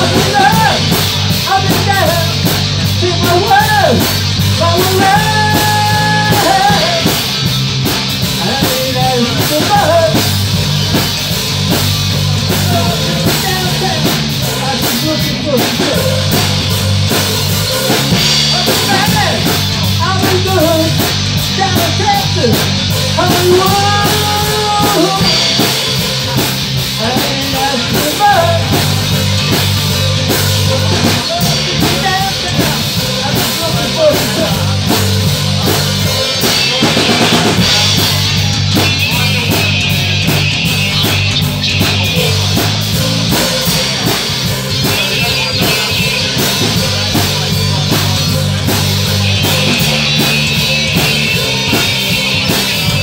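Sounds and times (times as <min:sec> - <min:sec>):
live rock band playing: 0:00.0 - 0:53.0
man singing: 0:00.0 - 0:53.0.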